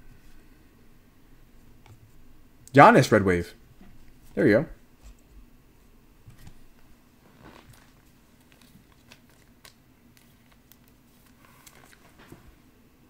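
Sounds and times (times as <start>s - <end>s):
low room hum: 0.0s - 13.0s
trading cards rustling: 7.3s - 12.4s.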